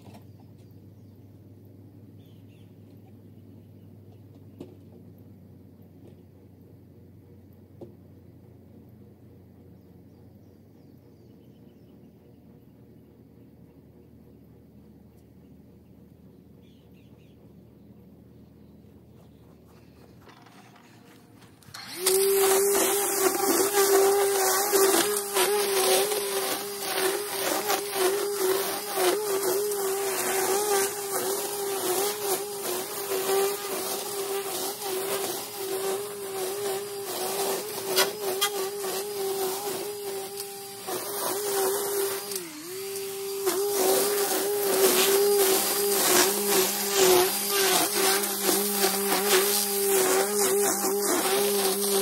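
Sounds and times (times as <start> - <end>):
trimmer line cutting grass: 19.6 - 52.0
string trimmer whining: 19.7 - 52.0.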